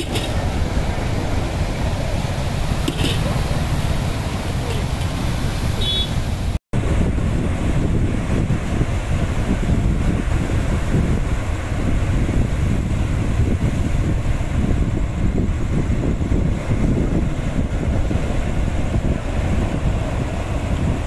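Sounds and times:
waves breaking on rocks: 0:00.0 - 0:06.6
wind buffeting microphone: 0:00.0 - 0:21.0.

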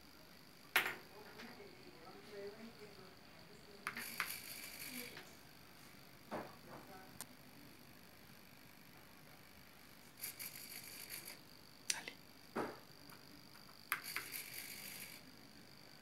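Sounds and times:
faint high whine: 0:00.0 - 0:16.0
servo motor whirring: 0:03.9 - 0:05.3, 0:10.1 - 0:11.4, 0:13.9 - 0:15.4.

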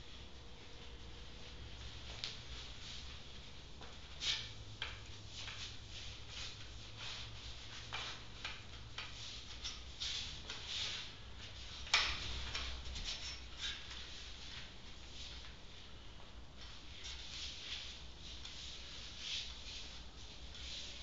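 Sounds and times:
steady low hum: 0:00.0 - 0:21.0.

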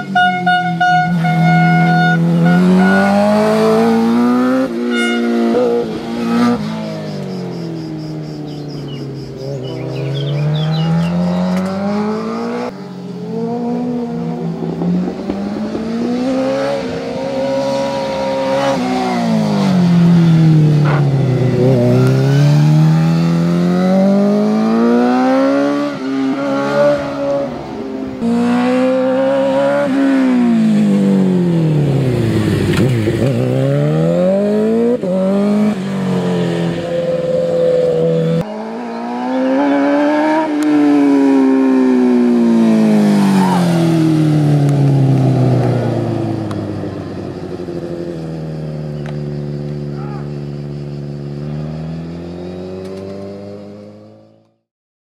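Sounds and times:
motorcycle engine revving high: 0:00.0 - 0:54.4.

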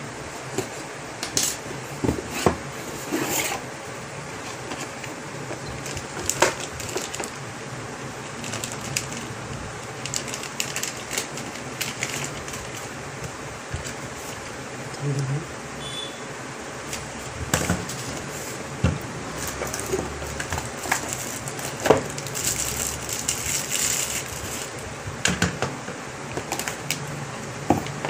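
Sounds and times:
packaging rustling and crinkling: 0:04.4 - 0:07.4, 0:08.2 - 0:14.6, 0:16.9 - 0:24.9, 0:26.3 - 0:27.0.

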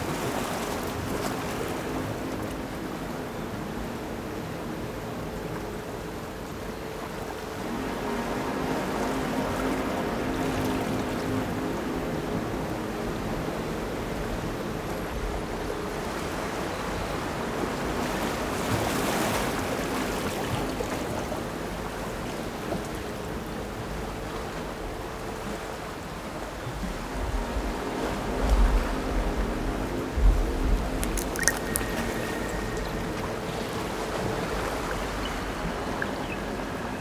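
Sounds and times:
low drones: 0:00.0 - 0:37.0
electronic hiss: 0:23.3 - 0:37.0.

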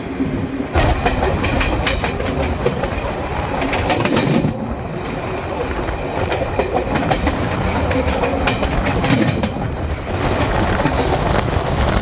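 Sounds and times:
train rumbling on rails: 0:00.0 - 0:12.0
wheels clacking: 0:00.8 - 0:12.0.

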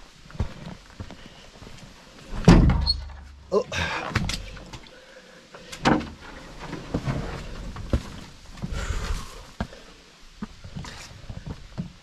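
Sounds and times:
footsteps on forest trail: 0:00.0 - 0:02.4, 0:06.9 - 0:12.0.

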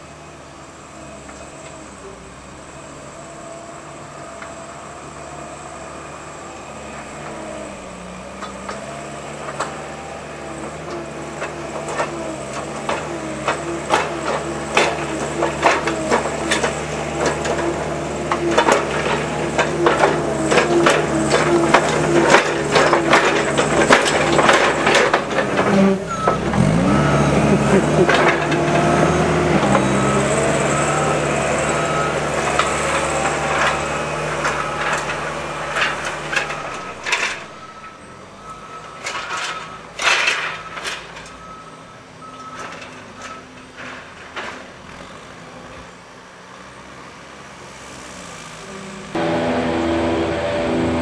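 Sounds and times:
diesel engine under load: 0:00.0 - 0:51.0
metallic clanking and rattling: 0:10.7 - 0:29.0, 0:31.4 - 0:38.2.

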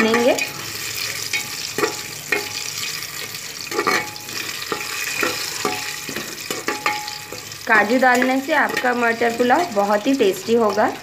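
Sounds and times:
spoon knocking and scraping pot: 0:00.0 - 0:02.6, 0:03.7 - 0:07.5, 0:08.2 - 0:09.7
spices sizzling in hot oil: 0:00.0 - 0:11.0.

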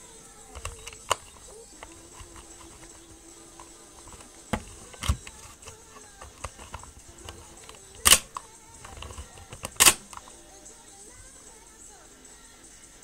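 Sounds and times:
faint steady background tone: 0:00.0 - 0:13.0
acrylic parts clicking and tapping: 0:00.4 - 0:10.4.

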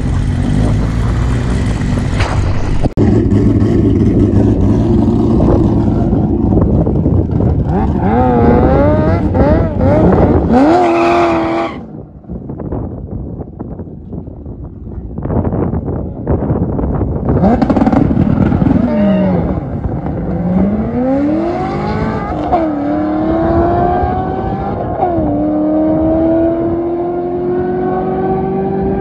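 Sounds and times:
drag racing cars at full throttle: 0:00.0 - 0:29.0.

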